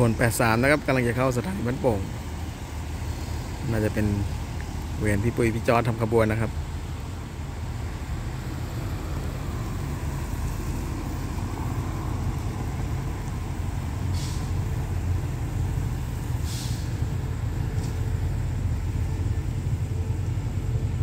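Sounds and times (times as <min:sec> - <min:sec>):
locomotive rumble: 0:00.0 - 0:21.0
short hisses: 0:14.1 - 0:14.7, 0:16.4 - 0:17.1.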